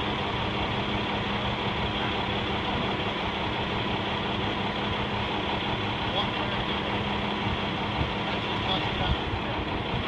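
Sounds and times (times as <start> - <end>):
engine idling: 0.0 - 10.0.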